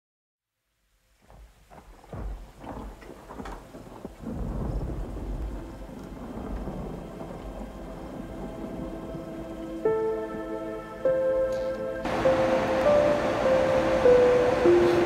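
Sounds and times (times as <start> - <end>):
rain: 0.7 - 15.0
thunder rumbling: 2.1 - 15.0
thunder cracks: 2.7 - 10.4.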